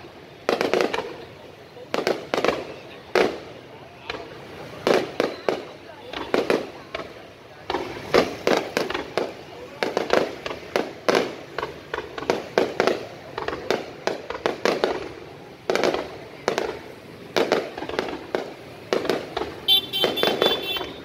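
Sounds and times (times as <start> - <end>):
fireworks bangs: 0.0 - 21.0.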